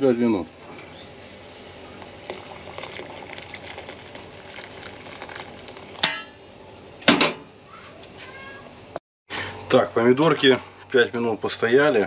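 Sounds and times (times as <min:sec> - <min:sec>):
faint steady crackling: 0:01.8 - 0:06.0
cat meowing: 0:07.8 - 0:08.7.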